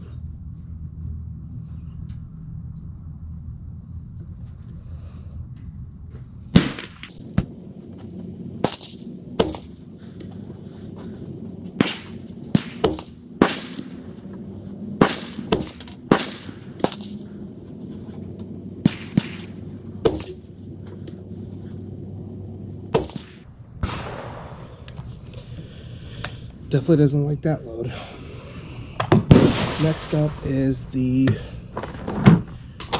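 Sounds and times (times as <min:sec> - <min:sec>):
rifle shots: 0:06.6 - 0:07.2, 0:08.6 - 0:09.8, 0:11.8 - 0:14.1, 0:15.0 - 0:17.3, 0:18.8 - 0:20.5, 0:22.9 - 0:24.7, 0:29.3 - 0:30.6.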